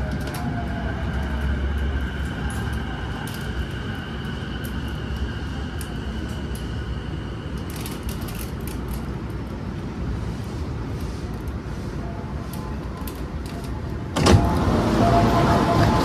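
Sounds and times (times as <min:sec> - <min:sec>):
train doors sliding open: 0:00.0 - 0:06.8, 0:10.4 - 0:16.0
train low rumble: 0:00.0 - 0:16.0.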